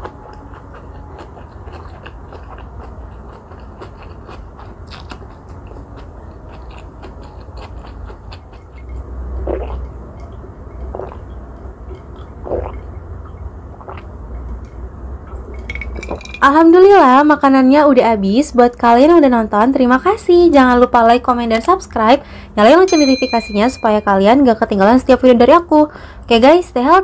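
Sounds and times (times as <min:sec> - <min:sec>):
vegetables crunching: 0:00.0 - 0:09.9
chewing and mouth clicks: 0:00.0 - 0:16.1
gulps while drinking: 0:09.4 - 0:09.9, 0:12.4 - 0:12.9.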